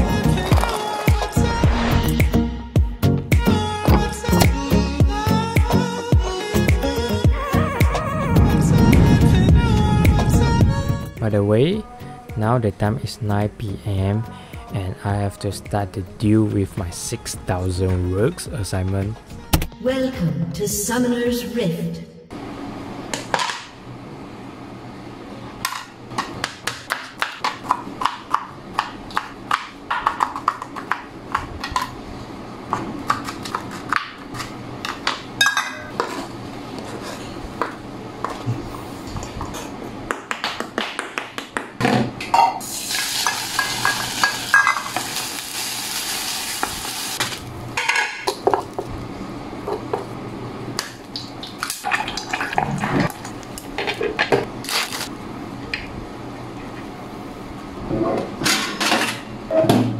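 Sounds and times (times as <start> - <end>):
utensils clinking on pot and plate: 34.9 - 36.3, 43.2 - 45.0
frying sizzle: 42.6 - 47.6.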